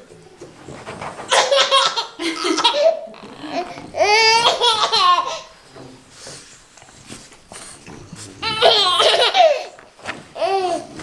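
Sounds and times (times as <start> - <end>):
toddler laughing: 1.3 - 5.5, 8.4 - 9.8, 10.4 - 11.0.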